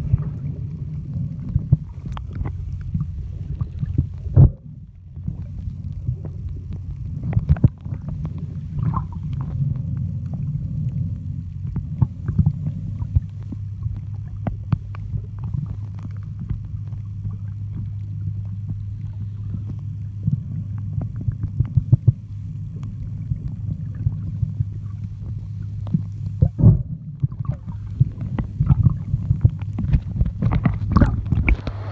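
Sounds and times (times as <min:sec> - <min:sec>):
muffled underwater hum: 0:00.0 - 0:31.9
underwater clicks and taps: 0:11.7 - 0:17.0, 0:25.8 - 0:31.9
underwater knocks: 0:25.9 - 0:31.9.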